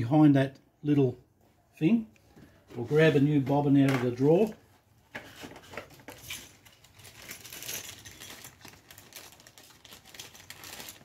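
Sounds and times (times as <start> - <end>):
small items clicking and rattling: 5.7 - 11.0.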